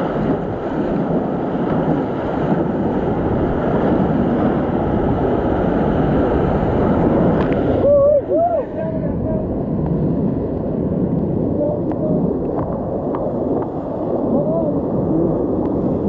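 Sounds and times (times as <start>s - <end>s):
whitewater rapids rushing: 0.0s - 9.6s
waves splashing on raft: 0.0s - 16.0s.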